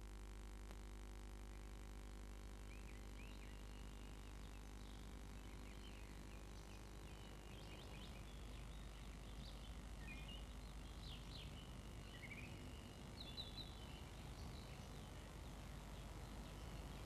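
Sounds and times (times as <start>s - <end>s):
tape hiss and hum: 0.0s - 17.0s
faint bird chirps: 2.5s - 17.0s.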